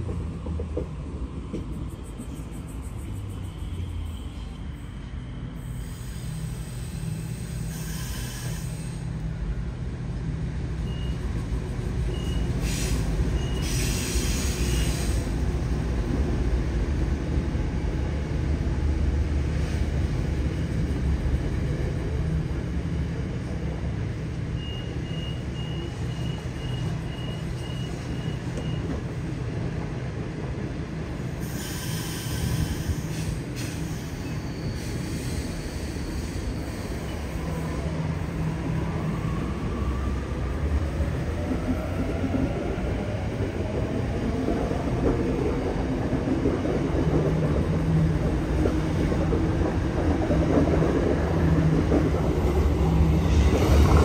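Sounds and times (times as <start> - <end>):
freight train rumbling past: 0.0 - 54.0
air hissing: 12.6 - 15.4.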